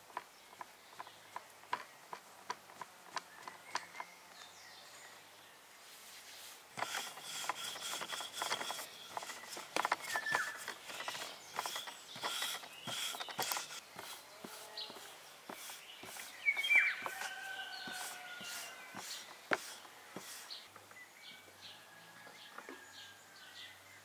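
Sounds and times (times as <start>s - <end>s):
hands kneading dough on wood: 6.5s - 20.6s
rolling pin rolling dough: 6.8s - 20.6s.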